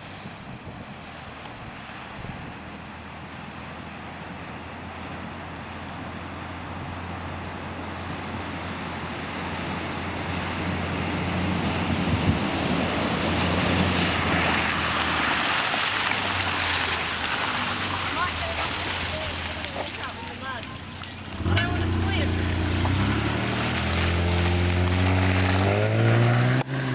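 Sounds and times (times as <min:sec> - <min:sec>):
vehicle engine droning: 0:00.0 - 0:26.9
water surging and splashing: 0:00.0 - 0:26.9.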